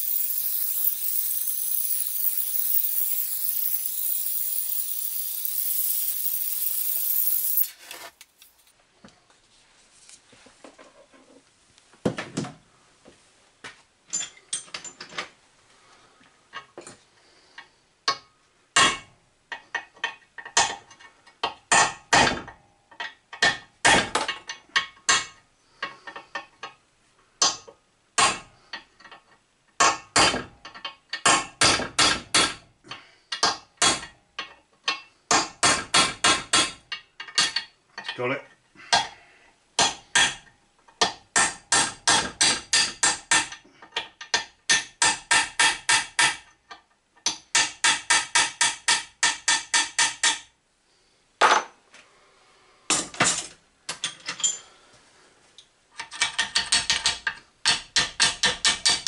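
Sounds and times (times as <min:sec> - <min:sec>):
torch hissing: 0:00.0 - 0:08.7.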